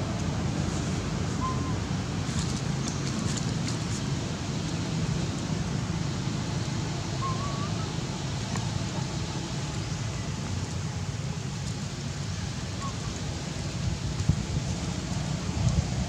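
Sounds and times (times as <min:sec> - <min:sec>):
low outdoor rumble: 0:00.0 - 0:16.0
short wavering whistle: 0:01.4 - 0:01.8, 0:07.2 - 0:07.9.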